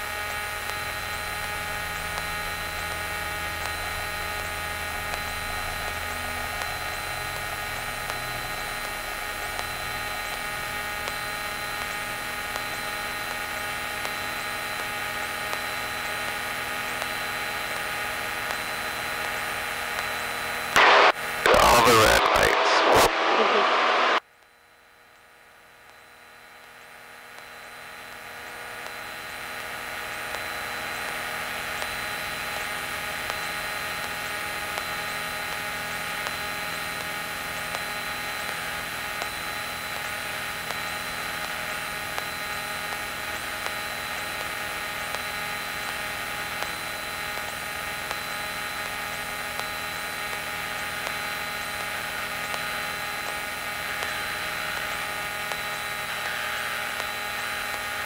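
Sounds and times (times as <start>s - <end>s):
thin high whine: 20.4s - 24.2s, 38.2s - 58.0s.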